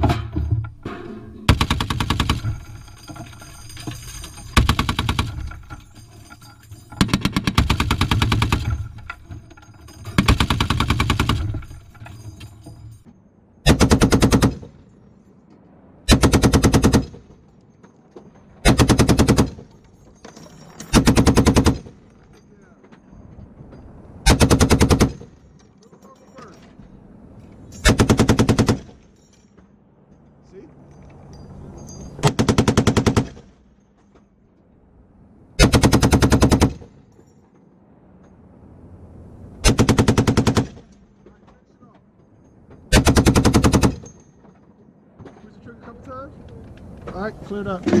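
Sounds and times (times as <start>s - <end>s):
heavy machine gun bursts: 0.0s - 12.9s, 13.6s - 14.8s, 16.1s - 17.3s, 18.6s - 19.8s, 20.8s - 22.1s, 24.2s - 25.4s, 27.7s - 29.1s, 32.2s - 33.6s, 35.6s - 37.0s, 39.6s - 41.0s, 42.9s - 44.2s.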